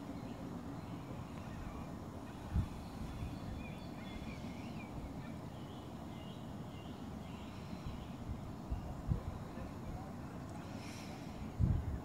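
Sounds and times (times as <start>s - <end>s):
distant traffic: 0.0s - 12.0s
wind on microphone: 1.7s - 5.2s, 7.7s - 10.1s, 11.2s - 12.0s.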